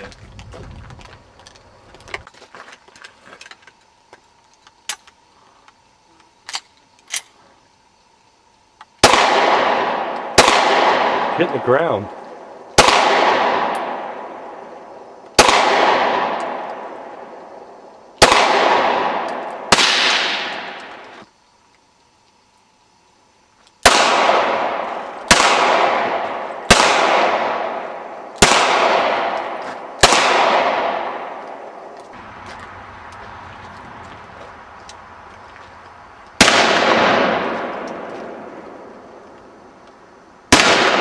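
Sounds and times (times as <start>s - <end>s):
pistol shots with echo: 9.0s - 14.8s, 15.4s - 17.4s, 18.2s - 21.1s, 23.8s - 31.8s, 36.4s - 39.0s, 40.5s - 41.0s.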